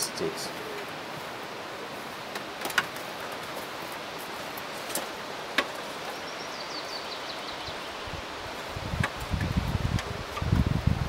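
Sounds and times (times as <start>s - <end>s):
steady hiss: 0.0s - 11.0s
twigs snapping: 2.3s - 6.2s.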